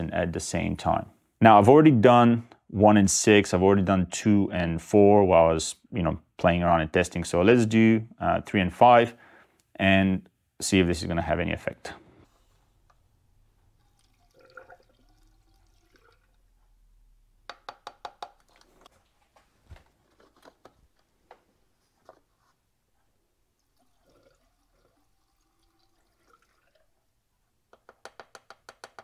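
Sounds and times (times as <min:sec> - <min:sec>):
liquid poured through funnel: 0:13.0 - 0:17.4, 0:23.4 - 0:27.4.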